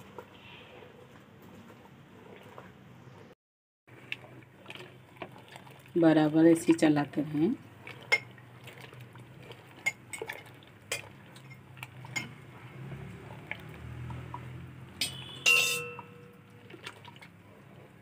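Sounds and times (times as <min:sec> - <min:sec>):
ringing metallic clink: 0:15.0 - 0:16.3.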